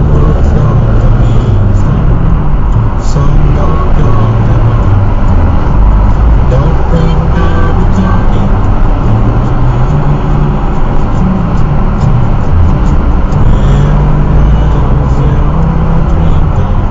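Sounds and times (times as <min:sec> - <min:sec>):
car cabin road and engine rumble: 0:00.0 - 0:16.9.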